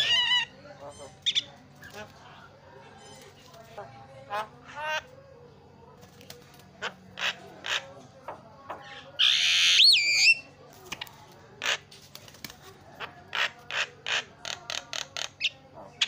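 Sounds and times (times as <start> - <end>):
bird calling with harsh rasps: 9.2 - 10.5
bird screeching and whistling: 9.2 - 10.5.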